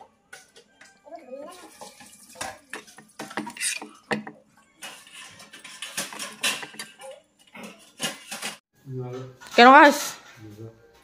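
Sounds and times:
metal spatula scraping a pan: 1.7 - 8.6.

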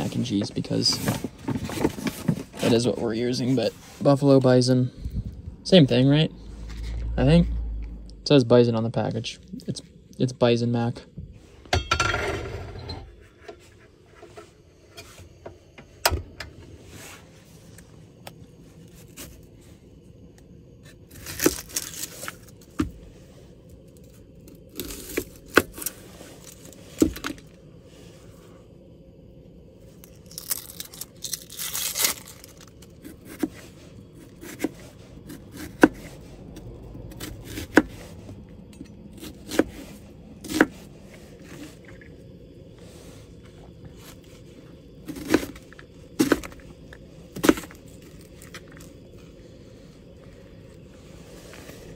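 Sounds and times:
rustling and scraping: 0.0 - 5.2, 5.9 - 7.9, 11.3 - 16.0, 16.6 - 19.8, 39.5 - 51.9.

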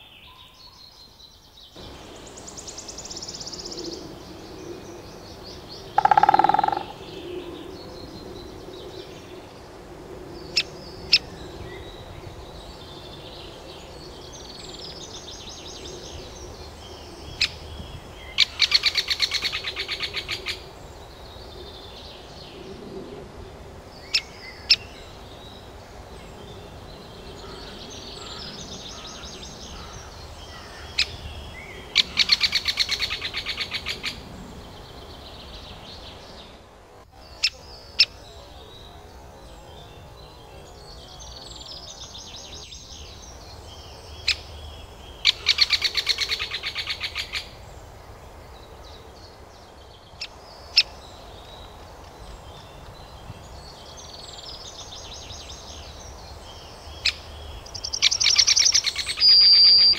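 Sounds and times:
woodpecker call notes: 5.6 - 7.4, 57.0 - 59.9
woodpecker chattering: 5.9 - 7.0.

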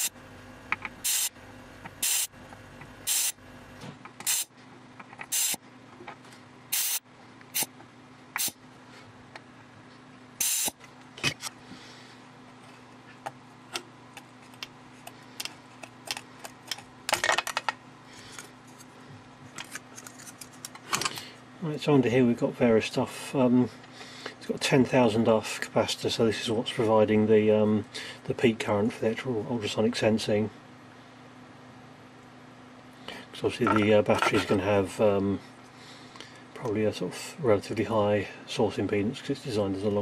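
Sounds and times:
desoldering tool hissing bursts: 1.0 - 1.4, 2.0 - 2.3, 3.0 - 3.4, 4.2 - 4.5, 5.3 - 5.6, 6.7 - 7.7, 8.4 - 8.6, 10.4 - 10.8.

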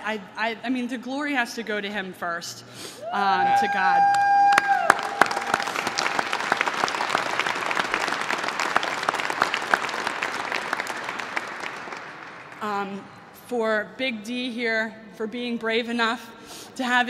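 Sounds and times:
audience applauding: 3.5 - 12.6.

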